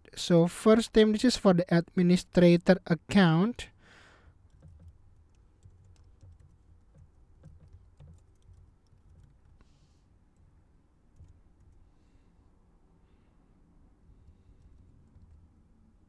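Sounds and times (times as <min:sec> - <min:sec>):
faint keyboard typing: 0:04.2 - 0:12.2, 0:14.2 - 0:15.8.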